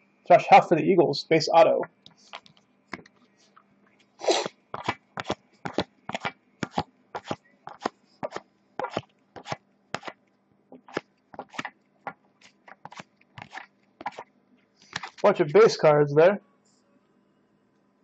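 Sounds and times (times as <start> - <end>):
trading cards flicking: 4.2 - 10.2, 10.8 - 11.8, 12.4 - 14.2, 14.8 - 15.3.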